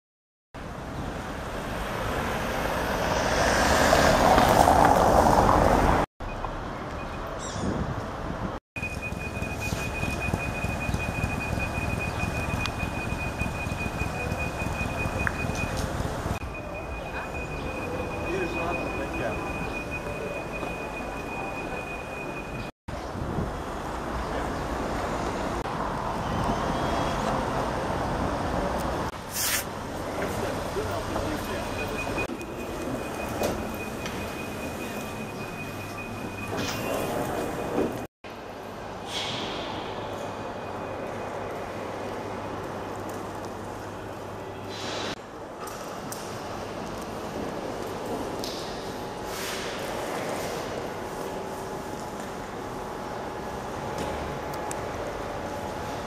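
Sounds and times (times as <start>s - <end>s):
road traffic rumble: 0.6s - 56.0s
street noise: 0.6s - 56.0s.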